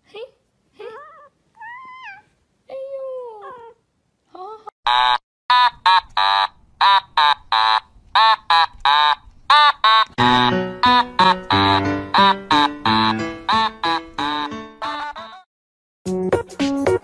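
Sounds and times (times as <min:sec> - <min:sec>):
cat meowing: 0:01.0 - 0:02.4
music: 0:10.2 - 0:15.4, 0:16.1 - 0:17.0.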